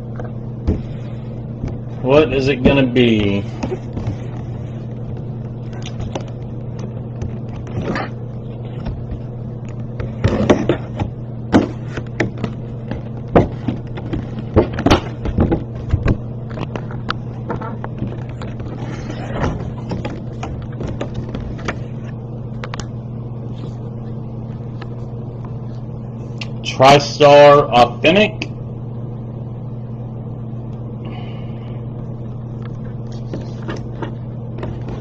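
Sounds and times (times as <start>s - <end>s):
low electrical hum: 0.0s - 35.0s.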